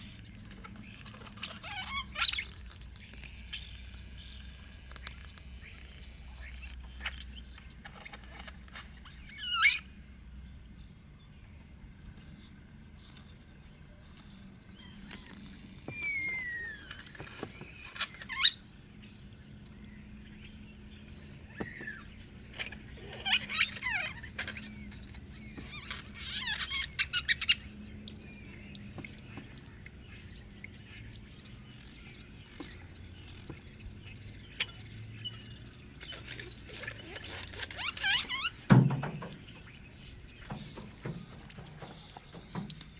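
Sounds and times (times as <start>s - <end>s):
bird chirps and falling whistles: 15.2s - 18.6s.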